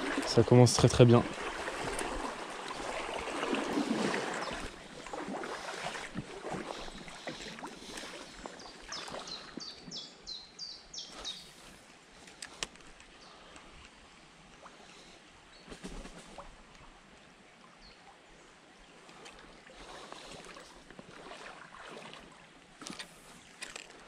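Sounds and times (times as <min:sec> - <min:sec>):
scuffs and splashes in water: 0:00.0 - 0:10.2, 0:11.0 - 0:13.8, 0:18.9 - 0:24.0
stream water running: 0:00.0 - 0:24.0
small bird singing: 0:08.3 - 0:11.6.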